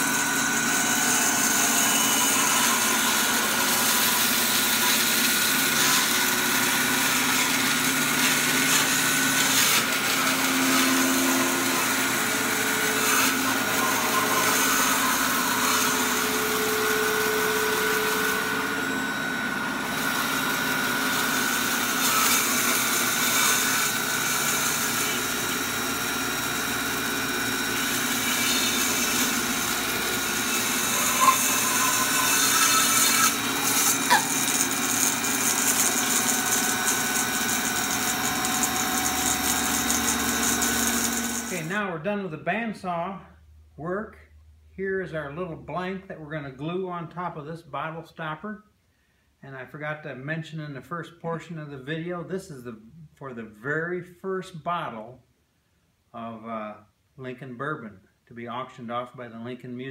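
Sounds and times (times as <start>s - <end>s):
bandsaw cutting wood: 0.0s - 41.8s.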